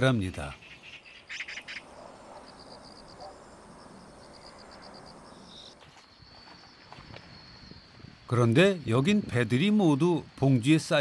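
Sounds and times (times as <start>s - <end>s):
insects trilling: 0.0s - 11.0s
bird chirp: 0.5s - 6.6s.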